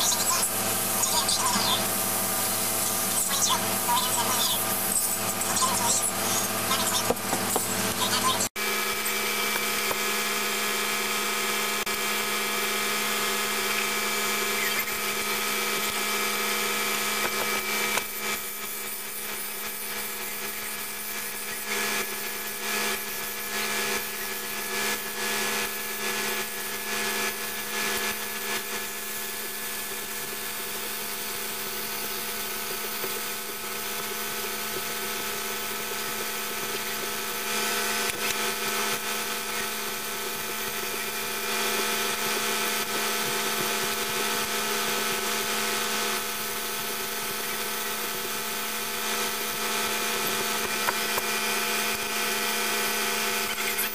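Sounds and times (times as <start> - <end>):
spray gun hissing: 0.0 - 8.2
electric motor hum: 0.0 - 53.9.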